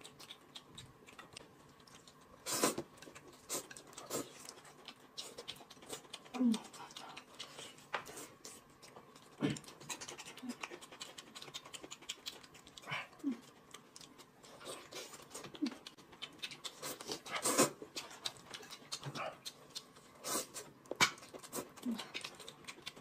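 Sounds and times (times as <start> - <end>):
chewing and lip-smacking: 0.0 - 23.0.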